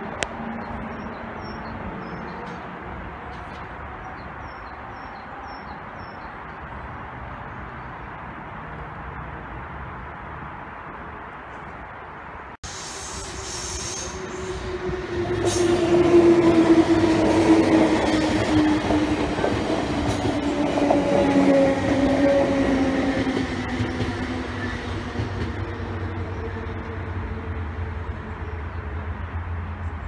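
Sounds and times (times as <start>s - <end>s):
wheels rumbling on rails: 12.9s - 30.0s.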